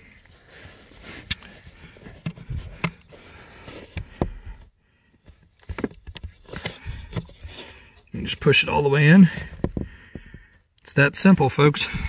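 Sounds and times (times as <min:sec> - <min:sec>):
plastic fuse clicking and scraping: 0:01.2 - 0:04.7, 0:05.3 - 0:08.1.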